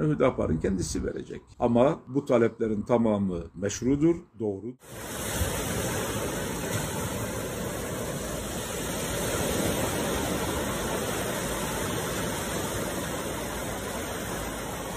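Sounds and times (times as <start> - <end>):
waves washing onto shore: 4.8 - 14.9.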